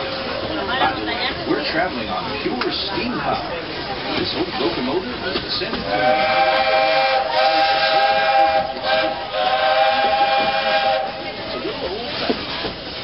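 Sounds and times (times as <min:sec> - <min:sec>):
moving train noise: 0:00.0 - 0:13.0
steam locomotive whistle: 0:05.9 - 0:11.5.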